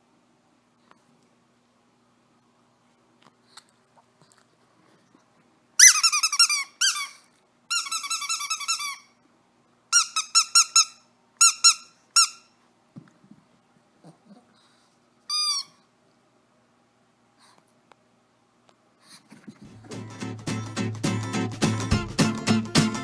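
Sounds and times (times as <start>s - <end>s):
rubber squeaky toy squeaking: 5.8s - 9.2s, 9.9s - 12.5s, 15.3s - 15.8s.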